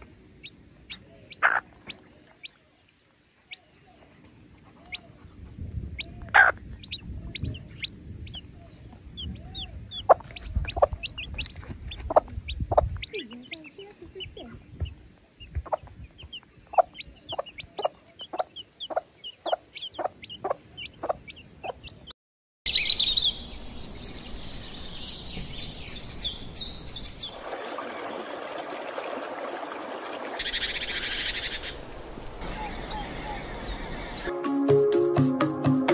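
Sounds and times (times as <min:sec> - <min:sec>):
wild birds calling: 0:00.0 - 0:22.1, 0:22.7 - 0:27.5, 0:30.3 - 0:34.3
chicks peeping: 0:00.4 - 0:02.6, 0:03.5 - 0:22.1
hen clucking: 0:00.4 - 0:02.6, 0:06.0 - 0:08.5, 0:09.2 - 0:22.1.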